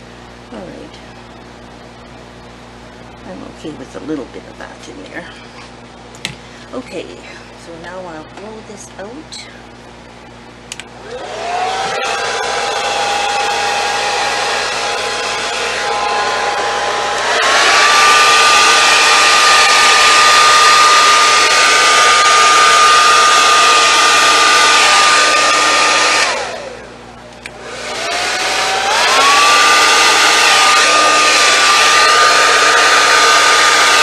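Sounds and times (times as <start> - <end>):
hair dryer whining: 10.7 - 34.0.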